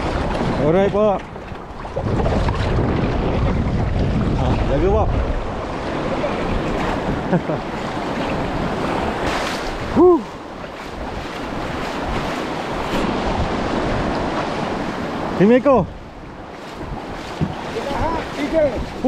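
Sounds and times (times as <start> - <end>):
surf splashing around a hull: 0.0 - 19.0
wind on microphone: 0.0 - 19.0
person shouting: 10.0 - 10.3.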